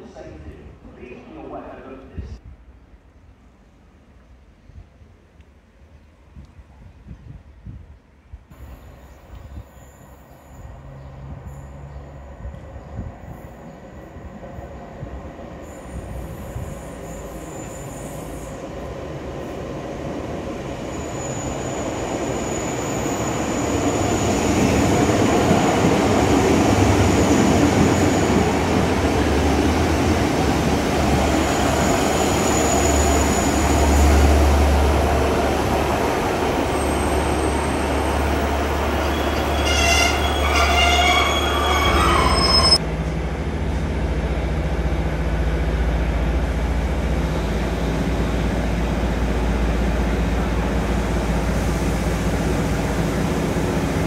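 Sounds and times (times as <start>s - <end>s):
train rumbling: 0.0s - 54.0s
wheel squeals: 38.9s - 42.8s.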